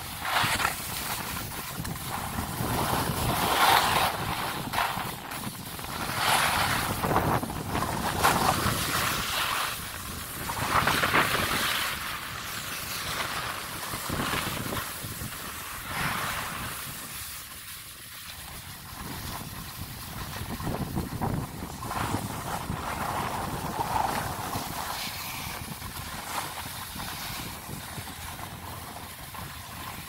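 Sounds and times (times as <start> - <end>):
wind buffeting microphone: 0.0 - 12.6, 18.8 - 30.0
skis scraping on snow: 0.0 - 30.0.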